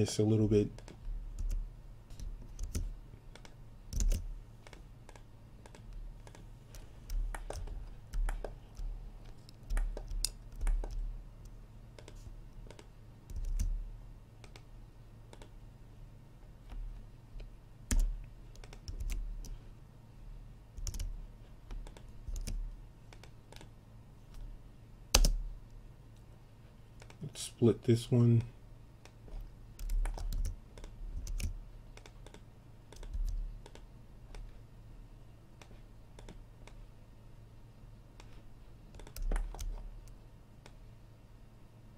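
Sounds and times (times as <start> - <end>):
keyboard and mouse clicks: 0.7 - 13.8, 14.4 - 14.7, 15.3 - 15.6, 17.4 - 19.6, 20.8 - 23.7, 25.1 - 25.4, 27.0 - 27.2, 29.0 - 34.6, 35.6 - 36.8, 38.2 - 40.8.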